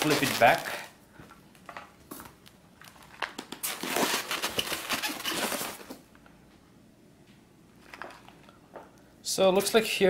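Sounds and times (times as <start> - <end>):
plastic and foam packing crinkling: 0.0 - 0.9, 1.5 - 6.0.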